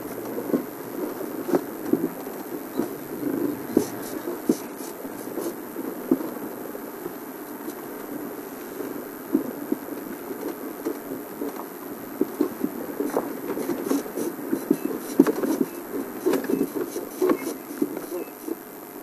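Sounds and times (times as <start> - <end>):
bodywork rattles and knocks: 12.2 - 18.2.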